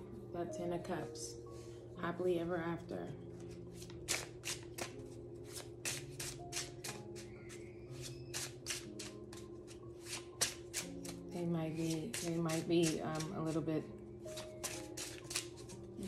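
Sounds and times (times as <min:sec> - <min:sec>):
cards being shuffled: 0:03.4 - 0:11.2, 0:11.8 - 0:13.6, 0:14.3 - 0:15.8.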